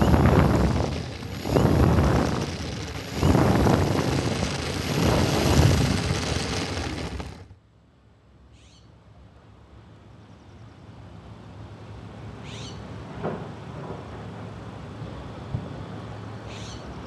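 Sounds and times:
wind rush: 0:00.0 - 0:07.5
model airplane motor: 0:00.0 - 0:07.6.

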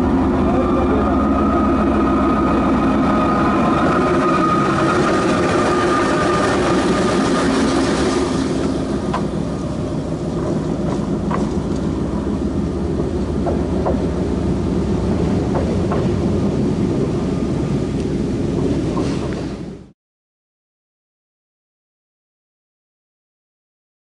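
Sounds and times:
diesel locomotive engine: 0:00.0 - 0:19.9
wheels clicking and squeaking on rails: 0:01.1 - 0:14.4, 0:18.5 - 0:19.8.

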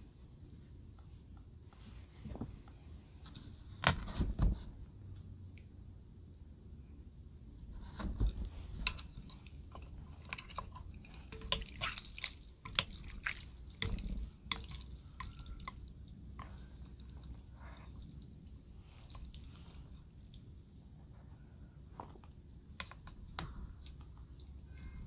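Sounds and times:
wet squelches and drips: 0:09.4 - 0:21.6, 0:22.2 - 0:25.0.

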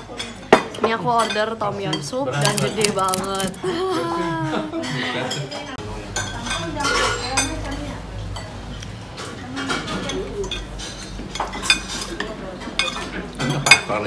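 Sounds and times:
faint low chatter: 0:00.0 - 0:14.0
cutlery clinking on plates: 0:04.8 - 0:14.0.

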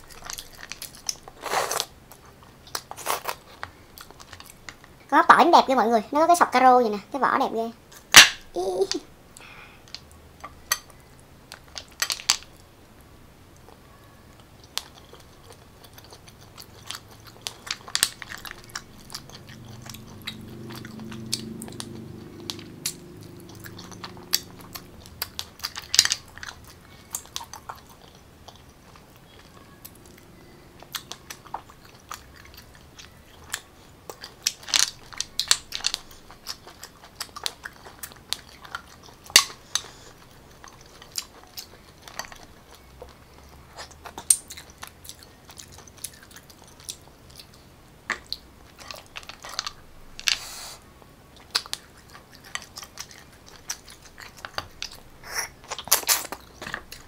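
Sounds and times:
wet chewing and smacking: 0:00.0 - 0:05.0, 0:13.6 - 0:50.6, 0:51.3 - 0:57.0
low hum: 0:16.9 - 0:33.6.

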